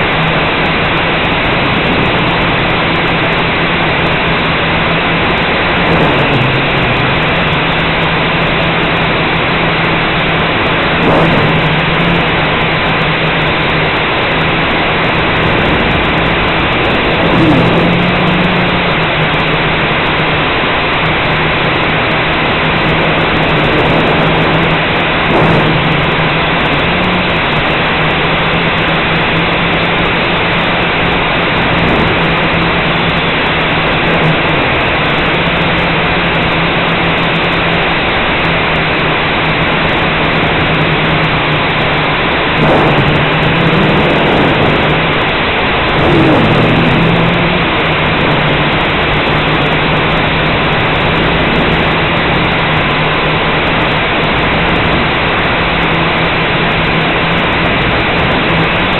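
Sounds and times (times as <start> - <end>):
quadcopter motors humming: 0.0 - 58.9.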